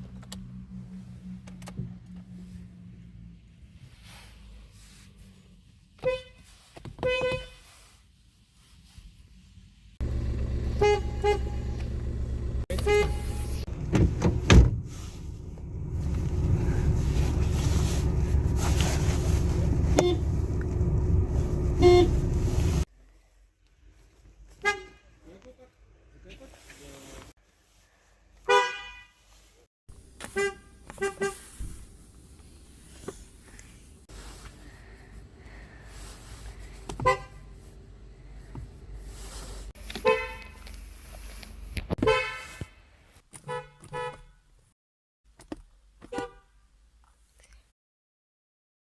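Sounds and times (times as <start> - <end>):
car horn beeps: 6.0 - 6.4, 7.0 - 7.6, 10.6 - 12.0, 12.7 - 13.6, 19.8 - 20.6, 21.6 - 22.8, 28.5 - 29.1, 30.3 - 31.4, 37.0 - 37.5, 40.0 - 40.6, 42.0 - 42.7, 43.4 - 44.4, 46.1 - 46.5
low rumble: 10.0 - 22.9.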